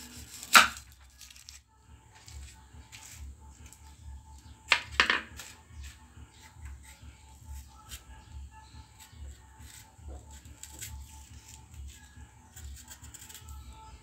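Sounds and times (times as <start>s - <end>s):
knife cutting onion: 4.7s - 13.9s.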